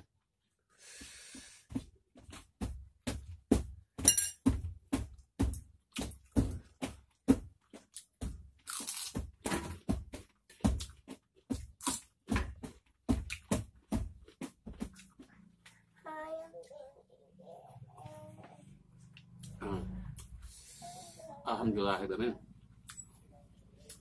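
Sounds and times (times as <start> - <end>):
crunchy chewing of raw vegetables: 7.9 - 9.2.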